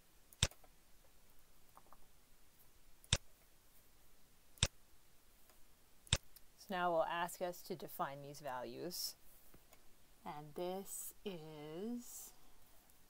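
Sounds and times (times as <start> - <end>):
computer mouse clicks: 0.3 - 0.7.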